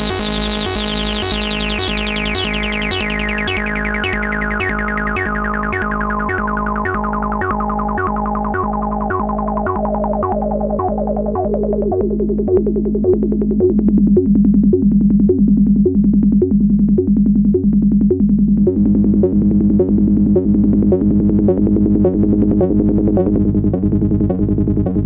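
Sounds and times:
steady low synth tone: 0.0 - 25.0
synthesizer bass pattern: 0.0 - 25.0.

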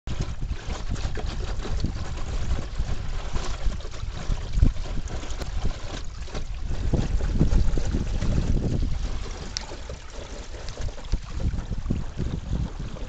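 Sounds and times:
water slapping against hull: 0.1 - 13.0
wind buffeting microphone: 0.1 - 13.0.

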